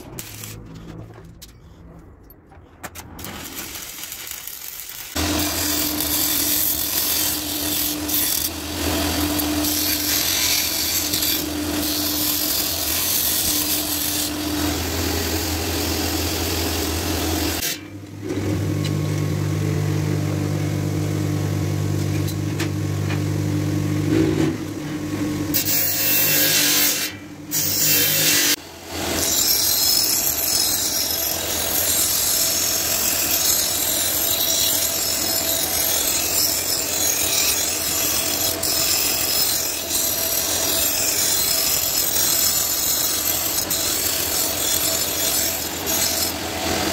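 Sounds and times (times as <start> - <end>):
belt grinder grinding steel: 0.0 - 0.8, 3.2 - 17.9, 25.5 - 46.9.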